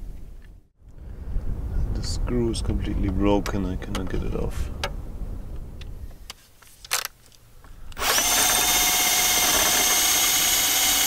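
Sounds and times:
cordless drill whining: 7.9 - 11.0.

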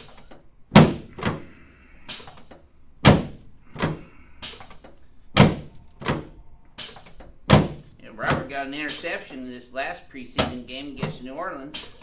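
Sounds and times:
treatment table thudding: 0.7 - 1.5, 3.0 - 4.1, 5.3 - 6.4, 7.0 - 8.6, 10.4 - 11.3.

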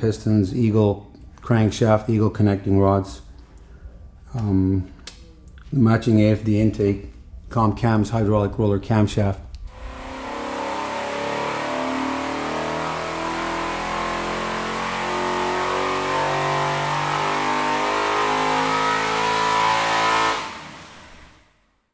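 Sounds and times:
engine running loud and steady: 9.7 - 21.4.

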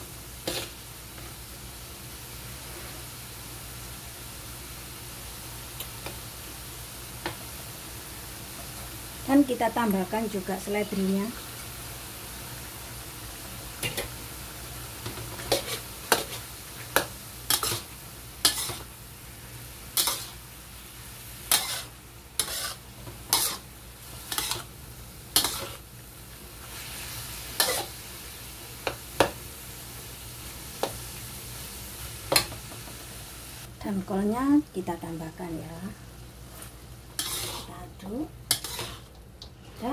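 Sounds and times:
food sizzling: 0.0 - 39.9
metal spatula scraping a wok: 0.4 - 0.8, 13.8 - 14.1, 15.1 - 18.9, 19.9 - 20.4, 21.5 - 24.7, 25.4 - 25.9, 26.7 - 28.0, 36.5 - 37.8, 38.5 - 39.9.

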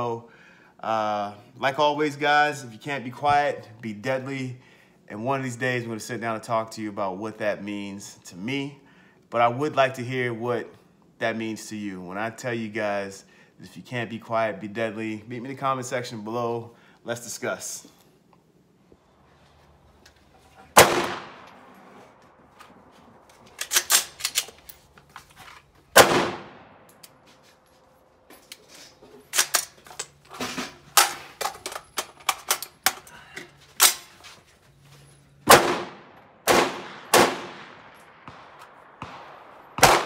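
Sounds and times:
rifle gunshots echoing: 20.8 - 22.0, 25.9 - 26.9, 35.5 - 40.0.

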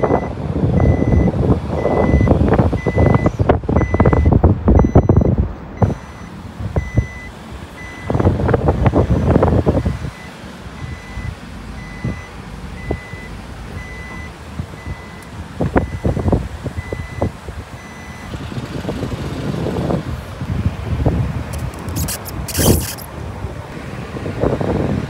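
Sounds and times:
reversing alarm beeping: 0.0 - 8.2, 9.1 - 18.4
low engine rumble: 0.0 - 25.0.

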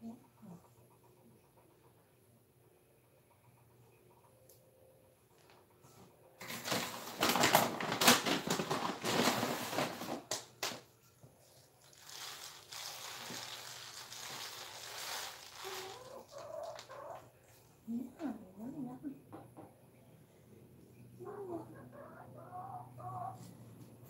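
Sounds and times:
chicken scratching through dry leaves: 11.8 - 17.2.

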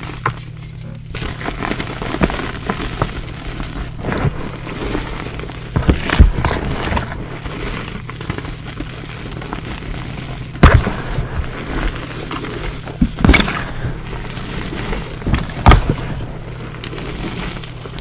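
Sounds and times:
chalk crumbling crunch: 0.0 - 18.0
loud thuds: 10.3 - 12.2.

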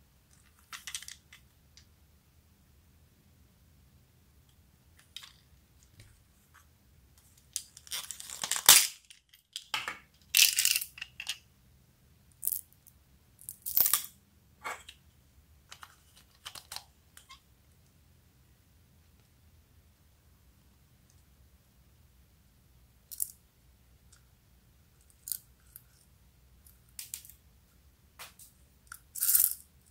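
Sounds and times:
plastic toys clicking and rustling: 0.4 - 1.4, 7.4 - 11.4.

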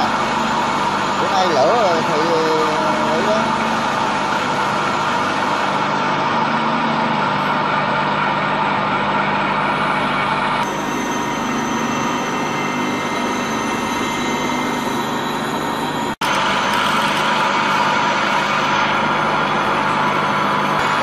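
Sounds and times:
metal lathe humming: 0.0 - 21.0
thin high whine: 0.0 - 21.0.

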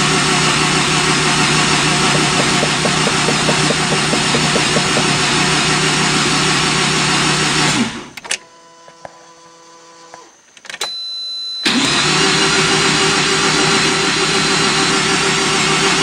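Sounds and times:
engine cranking on starter: 11.7 - 13.1.

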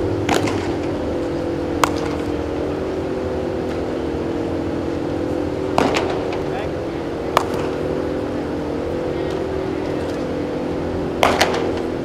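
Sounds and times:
ventilation fans humming: 0.0 - 12.0
baseball fielding knocks: 0.2 - 1.0, 1.8 - 2.4, 5.7 - 6.5, 7.3 - 7.9, 11.2 - 12.0.

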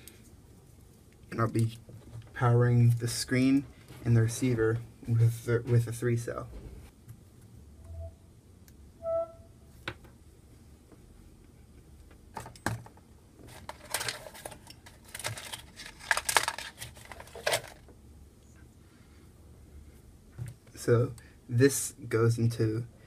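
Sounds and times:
cables scraping and rustling: 13.4 - 17.9.

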